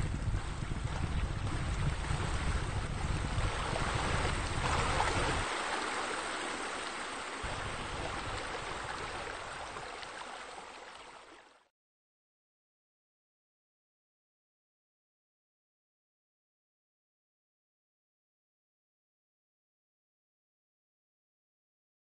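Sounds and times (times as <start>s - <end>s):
splashing water: 0.0s - 11.7s.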